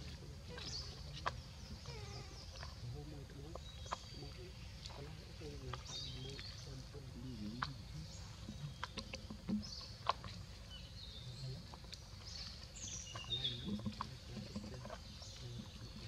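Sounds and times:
monkey chirps: 0:00.0 - 0:02.8.

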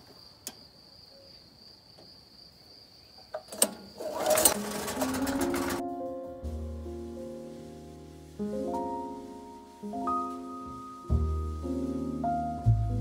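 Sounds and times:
small engine turning over: 0:03.6 - 0:05.8.

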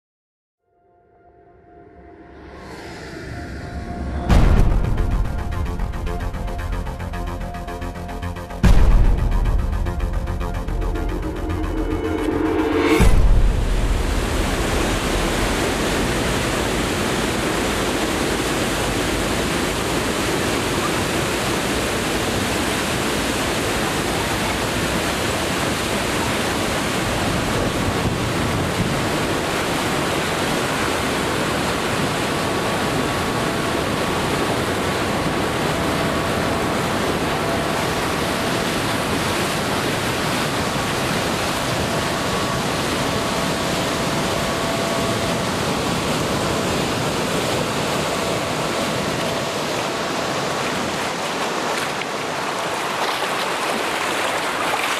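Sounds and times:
churning white water: 0:04.3 - 0:54.9
water splashing around raft: 0:14.5 - 0:54.9.

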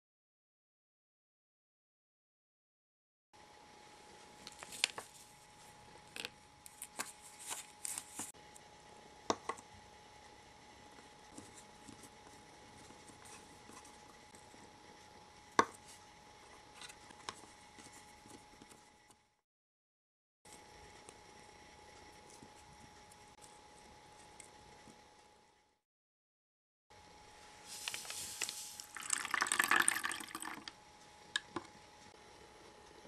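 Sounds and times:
faint high hum: 0:03.4 - 0:19.4.

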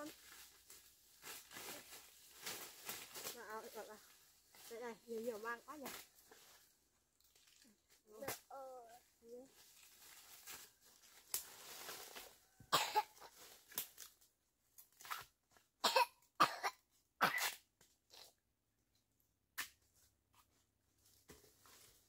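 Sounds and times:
person coughing: 0:12.7 - 0:13.2, 0:15.8 - 0:17.5.

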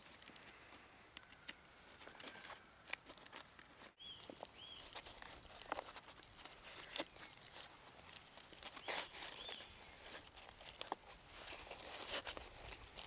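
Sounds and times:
bark crackling and rustling: 0:01.4 - 0:13.0
bird chirps: 0:04.0 - 0:05.0, 0:08.8 - 0:10.0.

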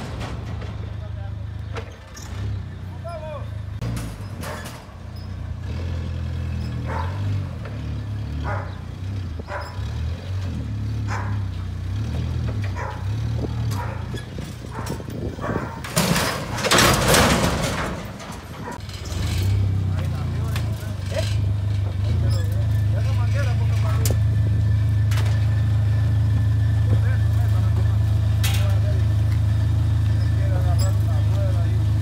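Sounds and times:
machine crashing into dumpster: 0:00.0 - 0:01.0, 0:15.8 - 0:18.6
forklift engine running: 0:00.0 - 0:32.0.

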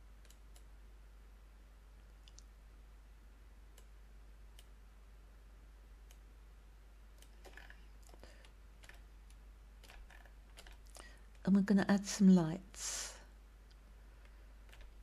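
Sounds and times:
low steady hum: 0:00.0 - 0:15.0
computer mouse clicks: 0:00.2 - 0:00.7, 0:02.2 - 0:02.5, 0:07.2 - 0:11.4.

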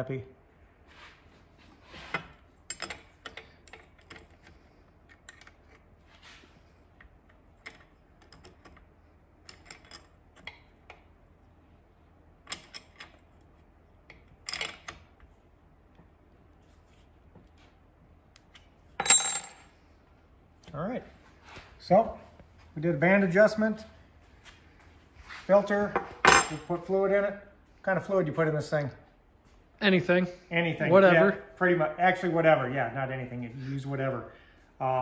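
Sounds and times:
wrenches clicking on metal: 0:02.1 - 0:05.9.

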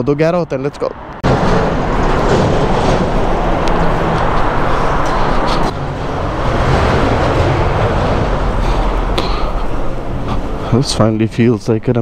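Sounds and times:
motorway traffic roar: 0:00.0 - 0:12.0.

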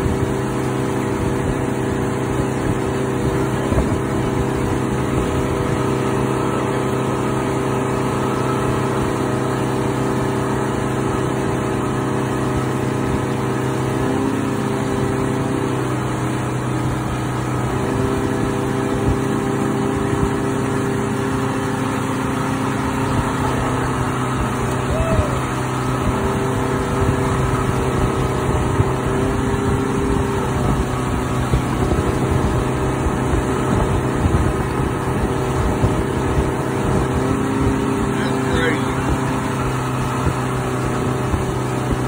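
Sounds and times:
motorboat engine running: 0:00.0 - 0:42.0
water rushing in wake: 0:00.0 - 0:42.0
low buffeting: 0:22.3 - 0:42.0.

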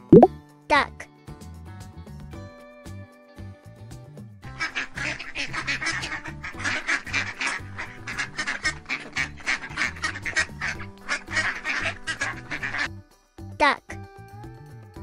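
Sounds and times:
ducks quacking: 0:04.5 - 0:12.9.

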